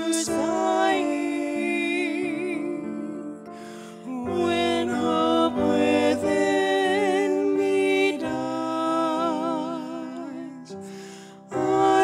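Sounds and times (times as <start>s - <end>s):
piano accompaniment: 0.0s - 12.0s
singer taking a breath: 10.8s - 11.5s.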